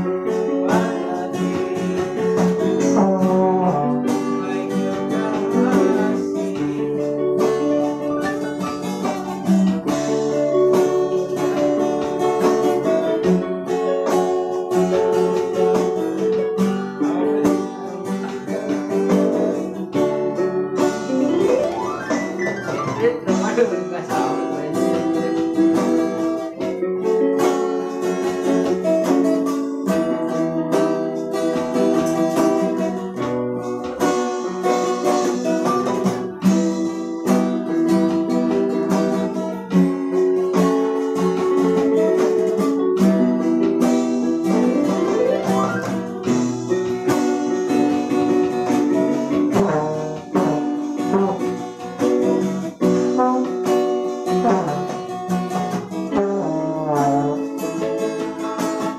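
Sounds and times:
keyboards: 0:00.0 - 0:58.4
acoustic guitar strumming: 0:00.0 - 0:58.9
trombone melody: 0:02.8 - 0:04.3, 0:49.5 - 0:51.8, 0:52.8 - 0:55.0, 0:56.1 - 0:57.8.

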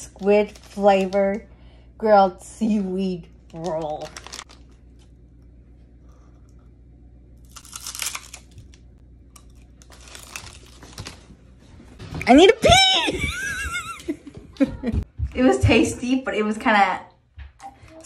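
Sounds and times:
plastic packet crinkling: 0:00.0 - 0:01.4, 0:03.4 - 0:05.2, 0:07.4 - 0:11.4
crisp snack being bitten: 0:07.4 - 0:11.2.

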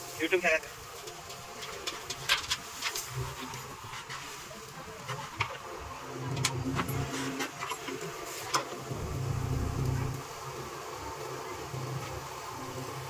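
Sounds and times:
diesel engine running: 0:08.9 - 0:10.3.

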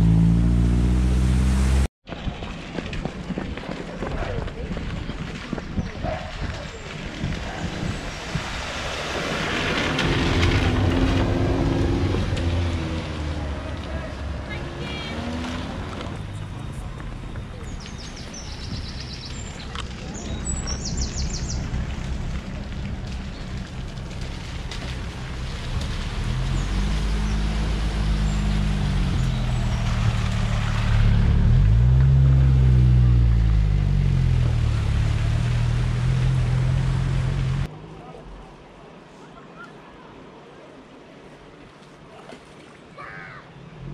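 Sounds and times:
car engine revving: 0:00.0 - 0:01.9, 0:08.9 - 0:17.0, 0:20.8 - 0:37.7
tyres splashing through water: 0:04.7 - 0:37.7
water rushing: 0:06.8 - 0:16.3, 0:19.7 - 0:39.0
birds chirping: 0:16.4 - 0:22.1, 0:26.5 - 0:30.6.

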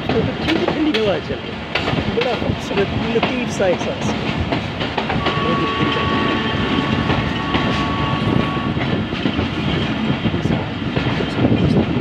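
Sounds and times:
train wheels rumbling on rails: 0:00.0 - 0:12.0
wind rushing in: 0:06.0 - 0:12.0.

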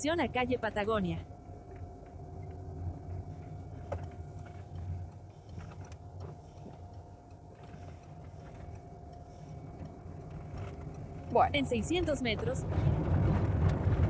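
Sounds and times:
faint whine: 0:00.0 - 0:14.0
van engine and tyres rumbling: 0:00.0 - 0:14.0
faint ticks: 0:01.6 - 0:12.5.

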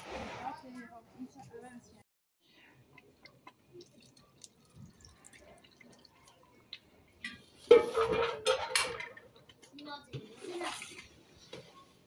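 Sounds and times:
faint drips: 0:02.4 - 0:07.4
metal bowl clattering on pot lids: 0:07.2 - 0:09.4.

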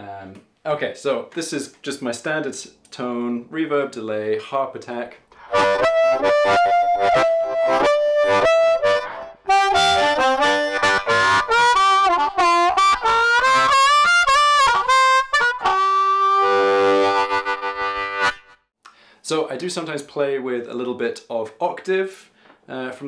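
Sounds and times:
amplified harmonica: 0:05.3 - 0:18.7.

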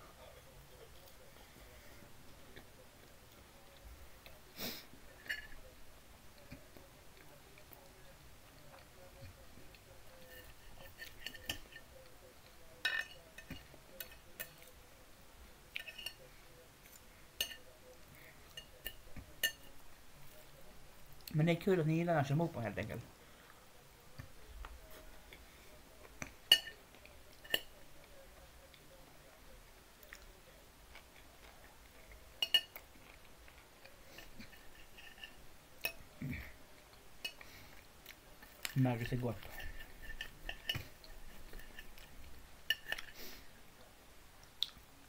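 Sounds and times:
cutlery clinking against a plate: 0:05.2 - 0:05.7, 0:10.1 - 0:12.1, 0:12.7 - 0:14.8, 0:15.7 - 0:16.3, 0:17.4 - 0:17.7, 0:18.5 - 0:19.8, 0:26.2 - 0:27.9, 0:31.0 - 0:36.5, 0:37.2 - 0:37.7, 0:38.4 - 0:43.3.

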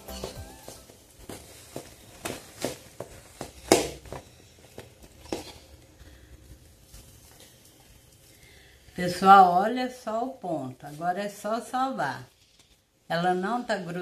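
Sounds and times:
hands kneading dough: 0:00.0 - 0:14.0.

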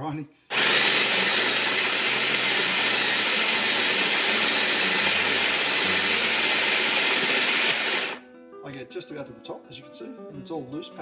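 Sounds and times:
electric coffee grinder grinding: 0:00.5 - 0:08.2.

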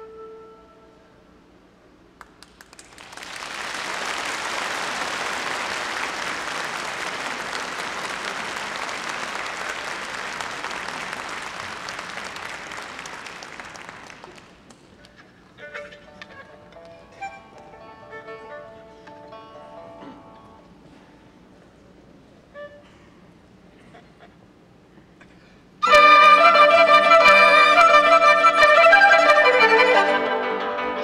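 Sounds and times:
audience applause: 0:02.2 - 0:14.9
bamboo flute note: 0:25.8 - 0:30.3.

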